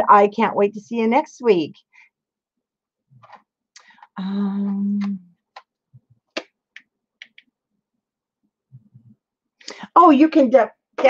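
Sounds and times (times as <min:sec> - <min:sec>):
woman humming: 0:04.2 - 0:05.3.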